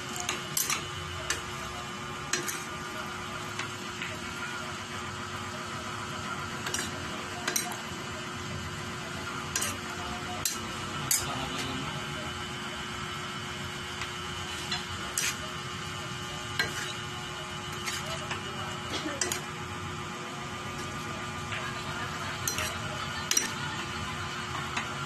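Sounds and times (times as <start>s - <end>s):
metal spoon clinking on pan: 0.2s - 1.4s, 6.6s - 7.8s, 19.2s - 19.4s, 22.4s - 23.6s
frying sizzle: 13.4s - 25.0s.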